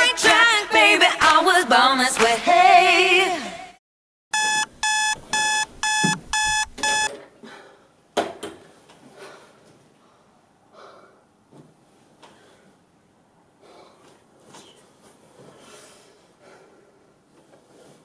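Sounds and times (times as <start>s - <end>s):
alarm clock beeping: 4.4s - 7.1s.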